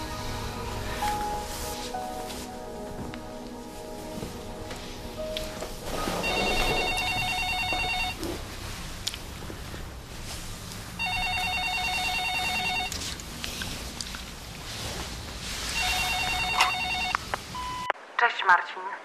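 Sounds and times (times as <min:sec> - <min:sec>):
telephone electronic trilling ring: 0:06.1 - 0:08.2, 0:11.0 - 0:12.9, 0:15.8 - 0:17.2.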